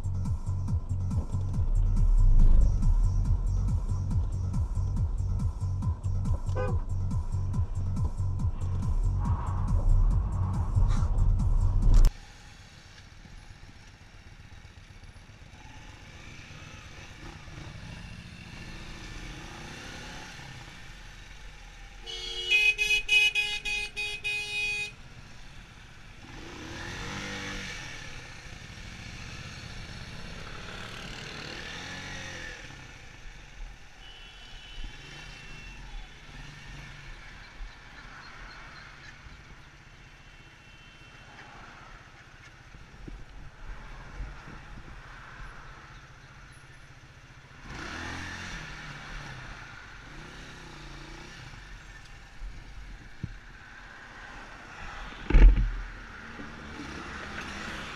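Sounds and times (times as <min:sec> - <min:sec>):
vehicles passing by: 0:00.0 - 0:57.9
vehicle horn honking: 0:06.5 - 0:06.9, 0:22.0 - 0:25.0, 0:34.0 - 0:35.8.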